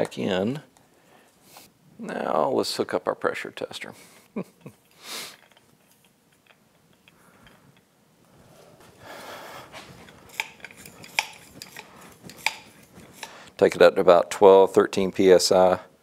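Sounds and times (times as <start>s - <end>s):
soft rustle: 7.1s - 13.8s.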